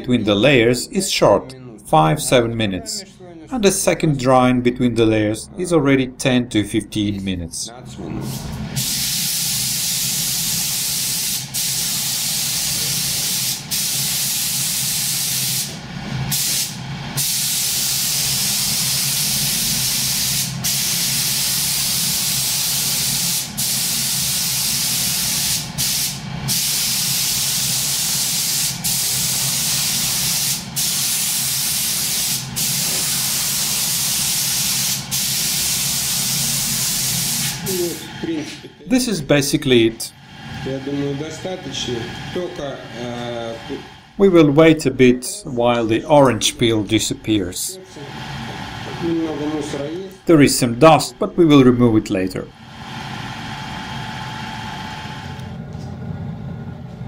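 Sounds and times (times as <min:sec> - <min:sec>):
paint spray gun hissing: 0:08.8 - 0:38.1.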